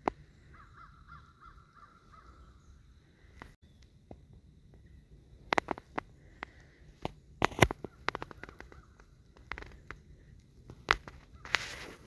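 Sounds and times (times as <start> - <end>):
sharp clicks and crackles: 5.4 - 12.0.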